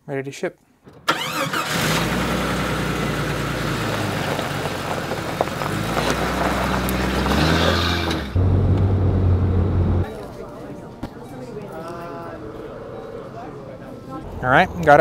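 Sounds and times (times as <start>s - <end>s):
car engine running: 1.1s - 10.1s
engine drone inside car: 1.8s - 10.1s.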